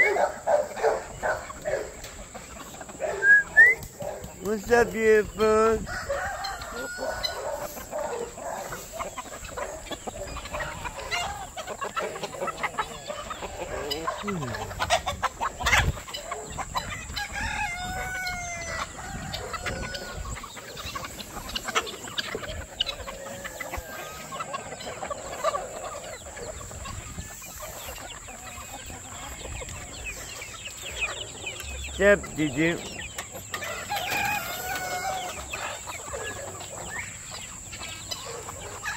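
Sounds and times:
chickens clucking: 0:00.0 - 0:38.9
rooster crowing: 0:05.8 - 0:08.2, 0:17.0 - 0:20.4, 0:33.6 - 0:35.5.

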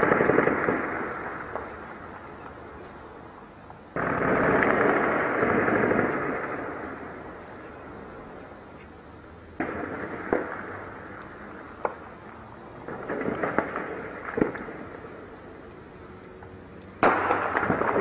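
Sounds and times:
gunshots echoing: 0:00.0 - 0:01.7, 0:04.0 - 0:07.4, 0:09.6 - 0:11.1, 0:12.8 - 0:15.1, 0:17.0 - 0:18.0.

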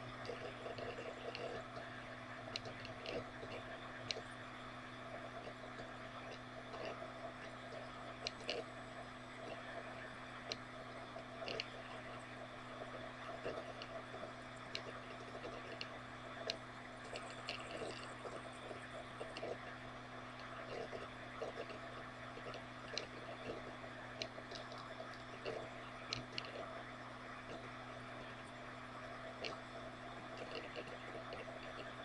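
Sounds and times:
steady low hum: 0:00.0 - 0:32.0
faint clicks: 0:02.5 - 0:04.3, 0:10.4 - 0:12.2, 0:12.9 - 0:19.7, 0:20.3 - 0:26.7, 0:29.3 - 0:32.0.

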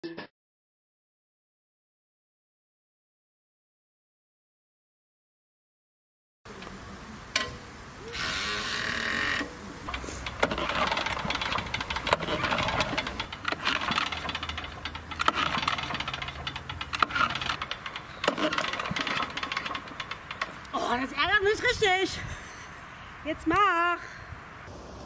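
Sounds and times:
engine cranking failing to start: 0:08.2 - 0:20.8.

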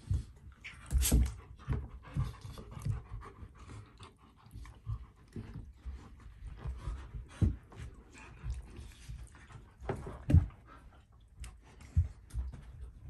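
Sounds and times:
dog panting: 0:00.0 - 0:13.0
scuffling and paw thumps: 0:04.9 - 0:11.0, 0:11.6 - 0:13.0.

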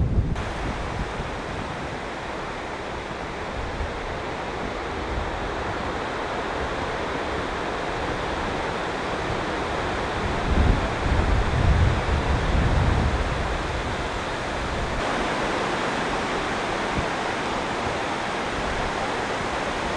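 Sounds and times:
wind rumble on microphone: 0:00.0 - 0:19.9
outdoor hiss: 0:00.4 - 0:11.0, 0:13.2 - 0:19.9.

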